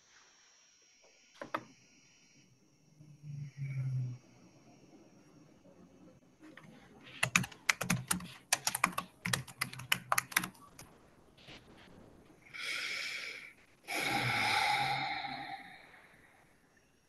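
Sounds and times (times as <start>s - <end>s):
typing on keyboard: 7.2s - 10.9s.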